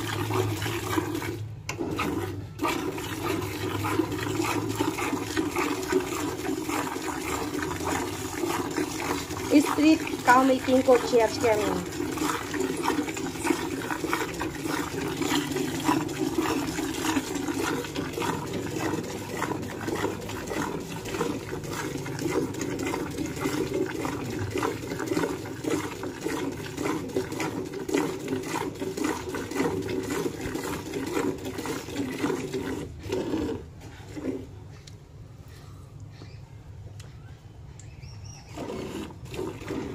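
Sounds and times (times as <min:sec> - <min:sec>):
milk squirting into a pail: 0:00.0 - 0:34.8, 0:38.3 - 0:39.9.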